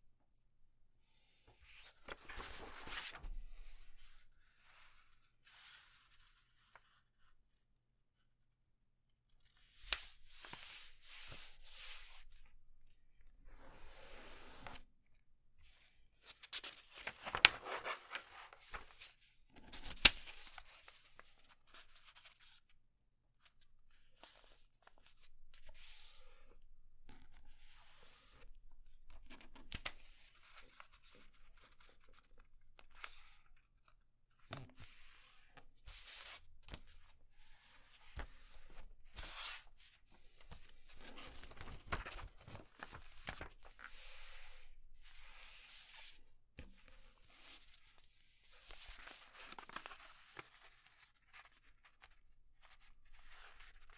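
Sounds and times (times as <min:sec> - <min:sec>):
paper rustling and crinkling: 0:01.8 - 0:03.8, 0:16.2 - 0:22.6, 0:37.7 - 0:44.4, 0:48.5 - 0:53.9
sharp paper crackles: 0:17.0 - 0:18.5, 0:41.5 - 0:43.5.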